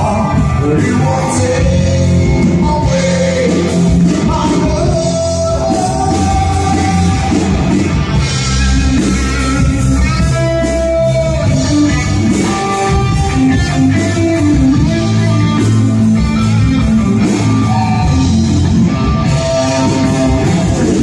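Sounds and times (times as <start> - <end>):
man singing into microphone: 0.0 - 7.6
rock band playing: 0.0 - 21.0.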